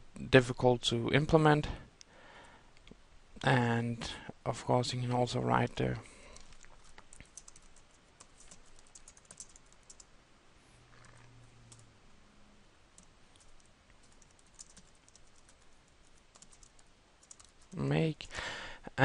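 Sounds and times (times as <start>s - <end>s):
typing on computer keyboard: 6.4s - 10.1s, 13.0s - 17.8s.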